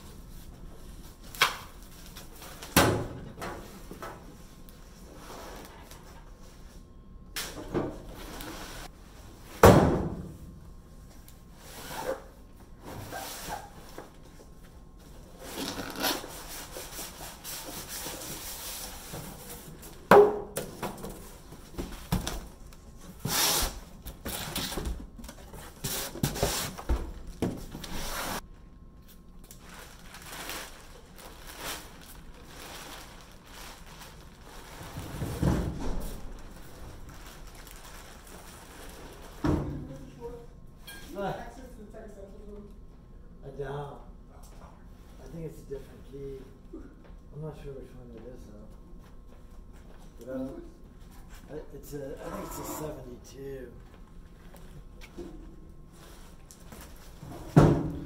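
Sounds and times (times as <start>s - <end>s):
cardboard and plastic wrap rustling: 20.9s - 28.4s, 29.4s - 40.1s, 53.8s - 58.0s.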